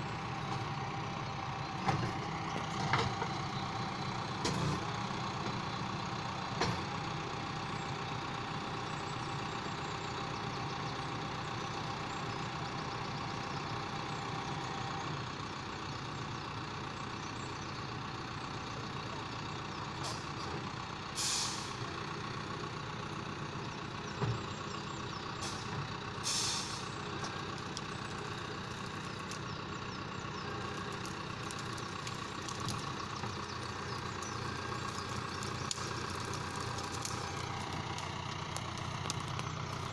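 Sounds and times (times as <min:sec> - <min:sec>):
diesel tractor engine running: 0:00.0 - 0:39.9
short hisses: 0:21.2 - 0:21.8, 0:26.2 - 0:26.9.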